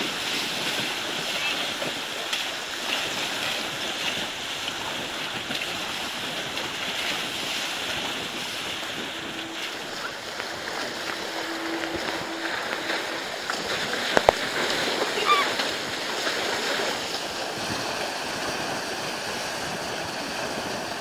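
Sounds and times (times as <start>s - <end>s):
water splashing against hull: 0.0s - 21.0s.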